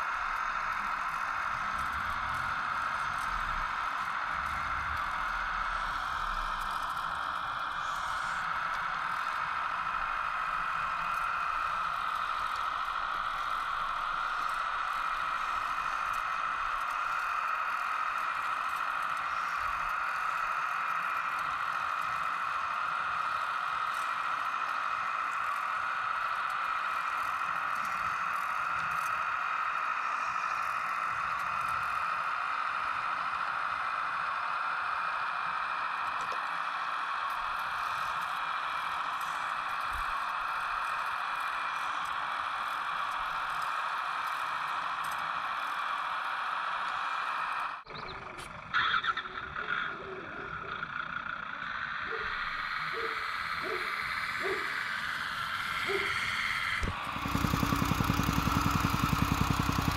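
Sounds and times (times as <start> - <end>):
hydraulic pump whirring: 52.0 - 59.9.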